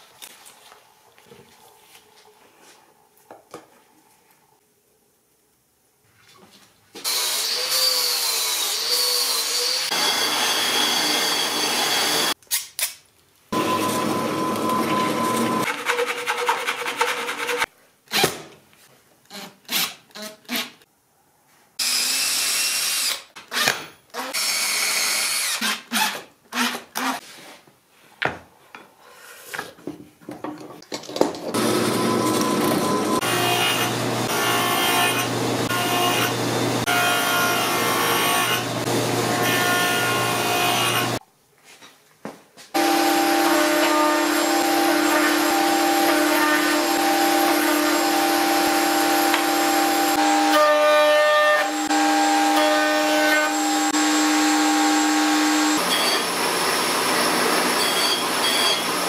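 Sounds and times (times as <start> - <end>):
table saw cutting wood: 7.0 - 12.4, 13.6 - 17.7, 21.8 - 23.2, 31.6 - 41.2, 42.8 - 59.0
angle grinder cutting metal: 7.1 - 12.4, 13.6 - 15.6, 31.6 - 41.2, 42.8 - 59.0
power tool running: 7.1 - 12.4, 13.6 - 15.6, 31.6 - 41.2, 42.8 - 50.8, 51.6 - 59.0.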